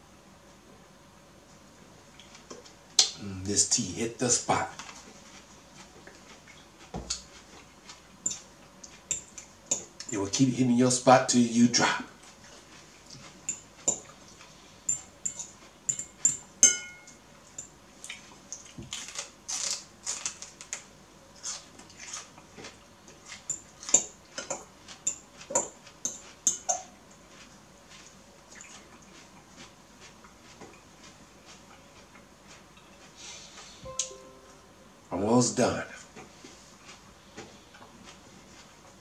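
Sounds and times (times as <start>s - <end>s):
metal fork clinking against bowl: 14.9s - 17.7s.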